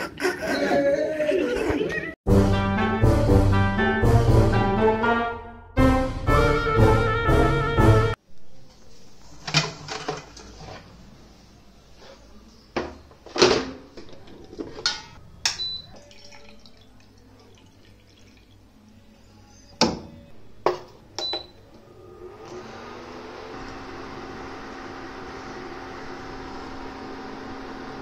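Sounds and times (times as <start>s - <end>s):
clicks of switches and kitchenware: 14.8s - 15.9s
cooktop beep: 15.4s - 16.0s, 21.2s - 21.6s.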